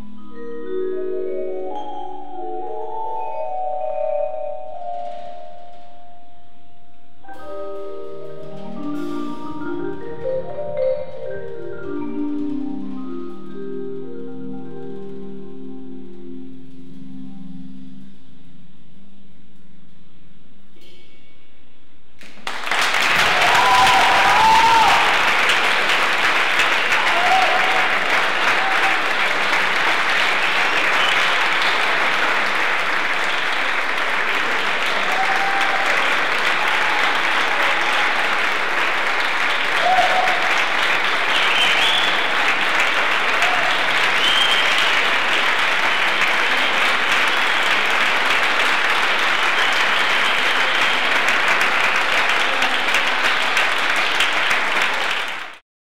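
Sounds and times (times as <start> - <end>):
audience applauding: 22.2 - 55.6
crowd calls: 22.5 - 55.6.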